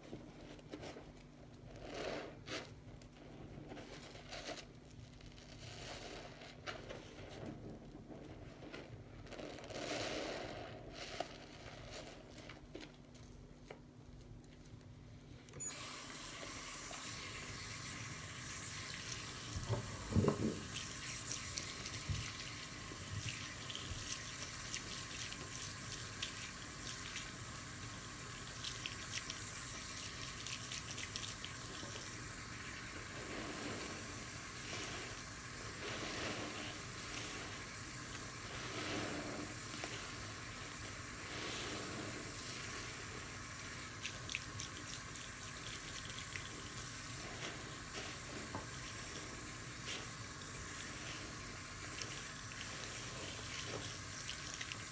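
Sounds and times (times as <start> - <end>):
tap water running: 15.6 - 54.9
sponge squelching in suds: 28.5 - 54.9.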